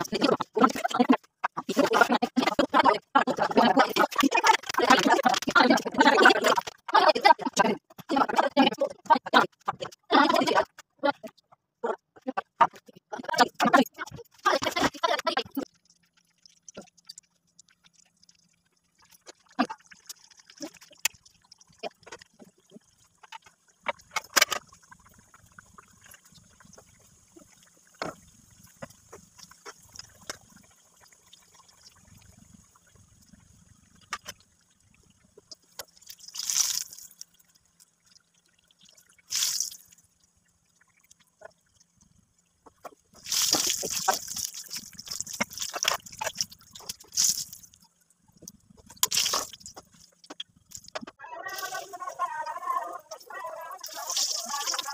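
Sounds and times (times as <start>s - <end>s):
food deep-frying in hot oil: 13.3s - 51.0s.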